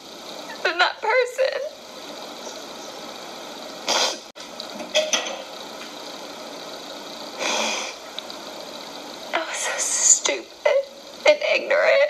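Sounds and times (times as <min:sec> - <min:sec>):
steady background hiss: 0:00.0 - 0:12.0.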